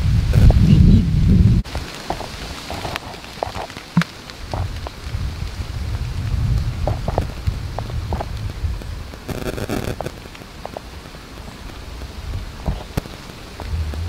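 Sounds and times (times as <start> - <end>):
low rumble: 0.0 - 1.7, 13.5 - 14.0
light rain falling: 0.0 - 14.0
drops ticking on leaves: 1.6 - 14.0.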